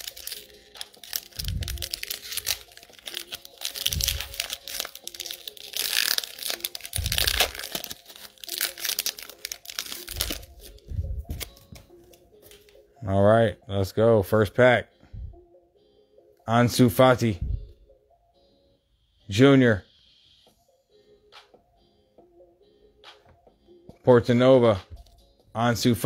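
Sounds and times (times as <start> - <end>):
foil wrapper tearing and crinkling: 0.0 - 10.8
dull low thumps: 10.8 - 11.4, 17.4 - 17.8.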